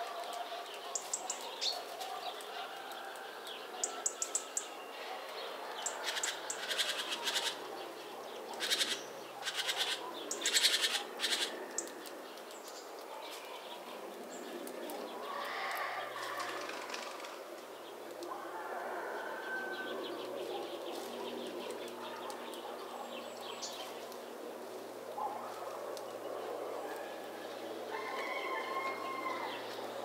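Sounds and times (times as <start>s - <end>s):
great tits calling: 5.8s - 15.2s.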